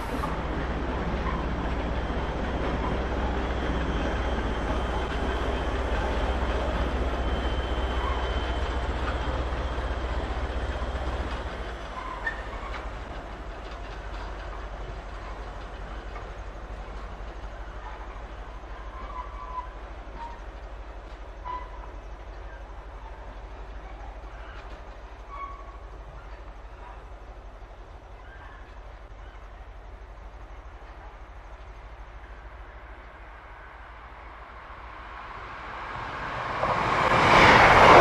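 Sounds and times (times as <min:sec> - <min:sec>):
diesel locomotive engine drone: 0:00.0 - 0:38.0
wagon wheel squeaks and clicks: 0:12.0 - 0:12.9.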